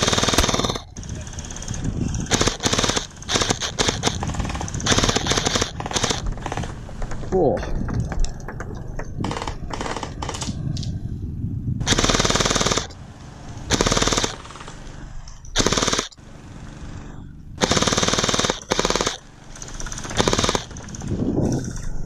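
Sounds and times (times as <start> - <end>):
gel blaster firing bursts: 0.0 - 6.6, 11.8 - 13.0, 13.7 - 14.8, 15.6 - 16.2, 17.6 - 21.3.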